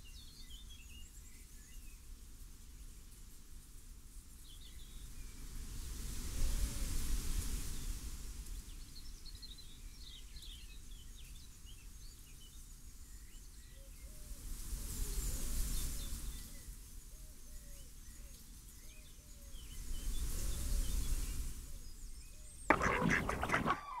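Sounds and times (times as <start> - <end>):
small birds chirping: 22.7 - 24.0.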